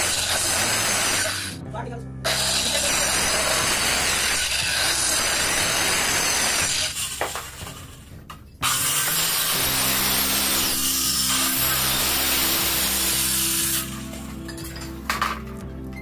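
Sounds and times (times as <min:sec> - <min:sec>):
electric cutter sawing plywood: 0:00.0 - 0:01.6, 0:02.3 - 0:07.2, 0:08.6 - 0:14.1.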